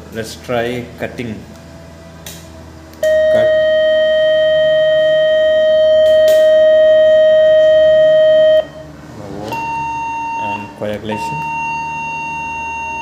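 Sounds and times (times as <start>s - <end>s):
loud high beep: 3.0s - 8.9s, 9.5s - 13.0s.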